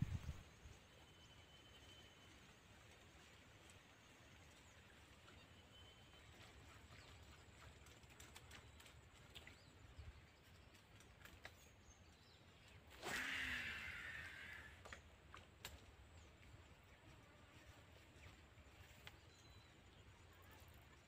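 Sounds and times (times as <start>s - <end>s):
fish splash on water: 12.9s - 14.8s
small clicks: 14.8s - 15.9s.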